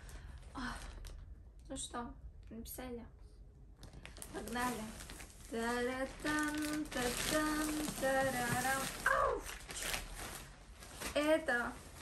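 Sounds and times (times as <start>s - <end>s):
plastic bag crinkling and rustling: 3.8s - 12.0s.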